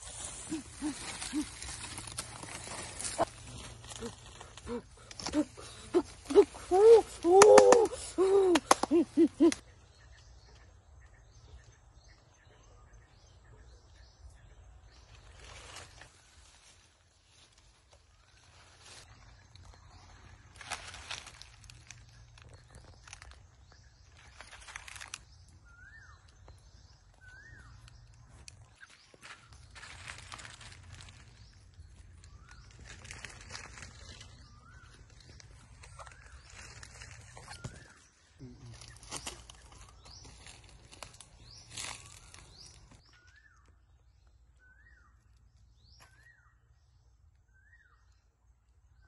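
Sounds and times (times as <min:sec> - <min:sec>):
footsteps crunching dry leaves: 0:00.0 - 0:07.2, 0:15.2 - 0:25.4, 0:28.3 - 0:38.1, 0:38.7 - 0:43.4.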